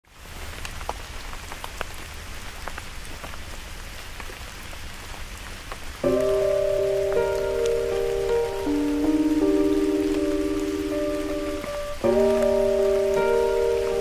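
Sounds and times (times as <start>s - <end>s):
rain falling on puddles: 0.1s - 14.0s
music with sustained notes: 6.0s - 14.0s.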